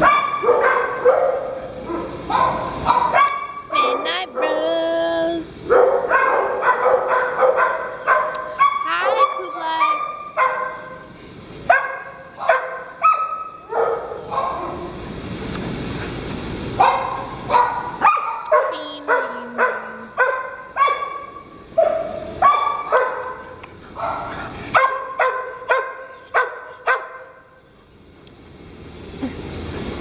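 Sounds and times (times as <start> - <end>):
dog barking: 0.0 - 4.6, 5.7 - 11.1, 11.7 - 15.0, 16.8 - 27.4.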